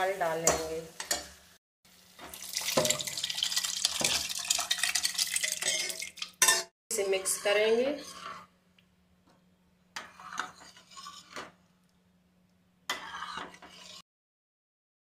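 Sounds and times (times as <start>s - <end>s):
metal ladle scraping a pot: 3.7s - 8.5s, 10.0s - 11.6s, 12.9s - 14.0s.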